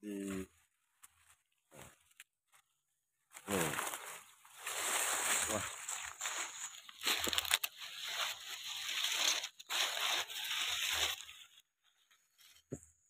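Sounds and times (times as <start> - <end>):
dry corn husks tearing: 3.4 - 11.6.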